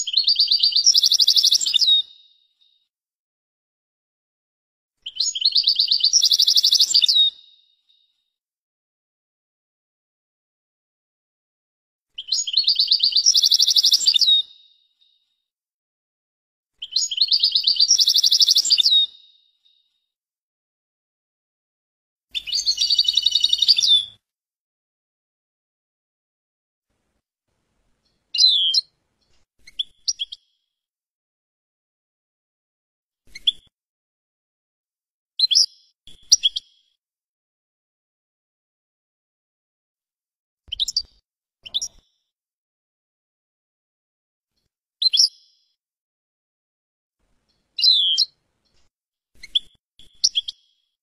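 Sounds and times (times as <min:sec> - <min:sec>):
goldfinch singing: 0:00.0 - 0:02.2, 0:05.1 - 0:07.6, 0:12.2 - 0:14.8, 0:16.8 - 0:19.8, 0:22.3 - 0:24.1, 0:28.1 - 0:28.9, 0:40.7 - 0:42.0, 0:47.5 - 0:48.4
bird chirping calls: 0:00.0 - 0:02.3, 0:05.0 - 0:07.6, 0:12.2 - 0:14.7, 0:16.8 - 0:19.8, 0:22.3 - 0:24.2, 0:28.1 - 0:30.4, 0:35.4 - 0:36.6, 0:40.7 - 0:42.1, 0:47.5 - 0:48.8.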